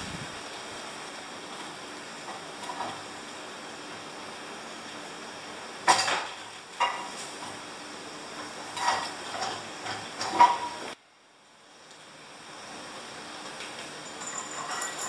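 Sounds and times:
metal clanks and scrapes: 8.7s - 11.0s, 14.1s - 15.0s.

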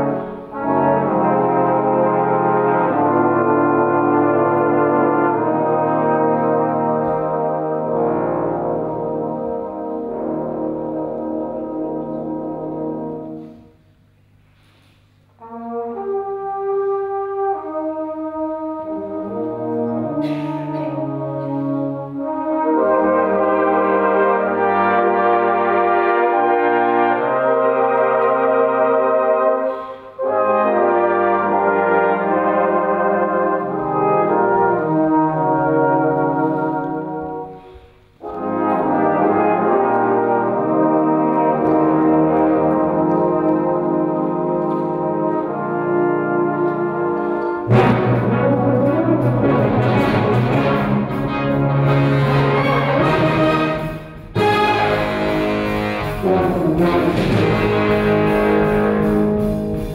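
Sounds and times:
brass band playing chords: 0.0s - 59.9s
low brass: 0.0s - 59.9s
brief hiss: 13.4s - 15.4s.

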